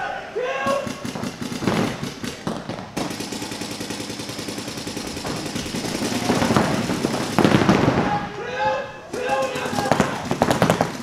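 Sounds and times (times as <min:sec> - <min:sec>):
paintball markers firing rapidly: 0:00.6 - 0:08.3, 0:09.1 - 0:11.0.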